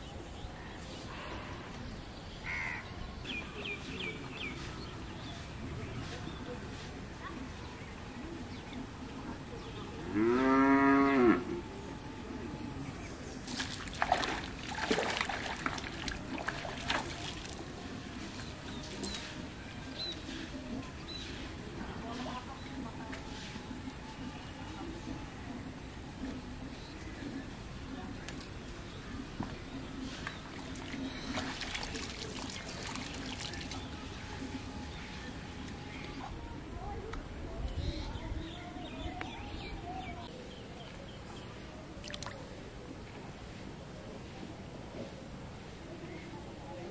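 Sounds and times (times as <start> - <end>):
water trickling and splashing: 13.4 - 20.3, 30.1 - 36.3, 42.0 - 42.6.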